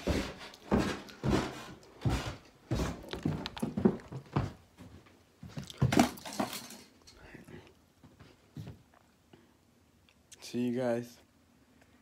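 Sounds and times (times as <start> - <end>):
footsteps thudding: 0.0 - 6.2.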